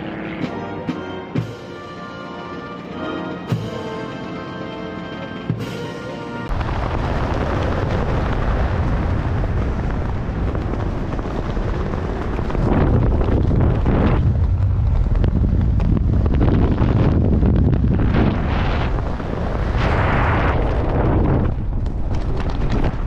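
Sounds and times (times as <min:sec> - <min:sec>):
wind buffeting microphone: 0:06.5 - 0:23.0.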